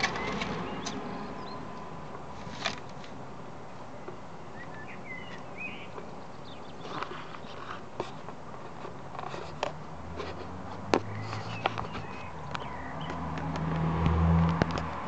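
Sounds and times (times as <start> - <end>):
vehicle engine hum: 0.0 - 15.0
light clicks and rustles: 5.3 - 13.8.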